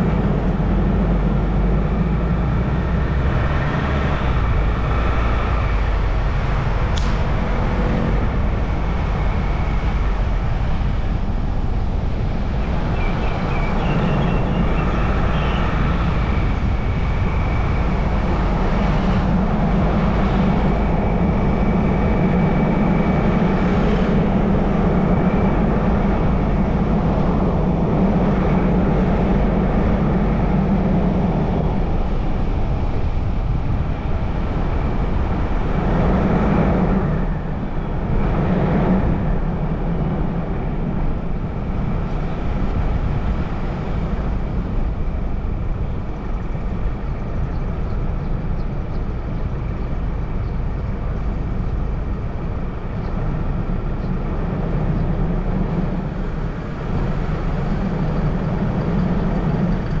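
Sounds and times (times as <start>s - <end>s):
car engine and tyre noise: 0.0s - 60.0s.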